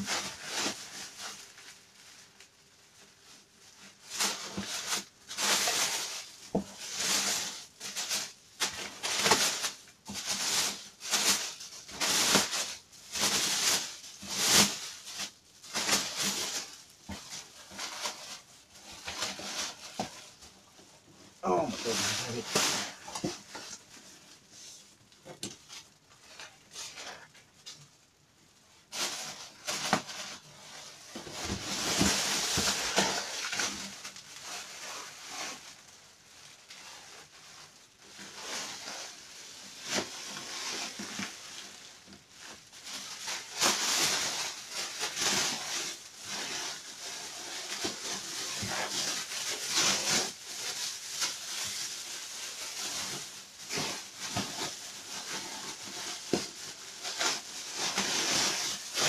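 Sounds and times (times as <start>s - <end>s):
plastic wrapping crinkling: 0.0s - 59.0s.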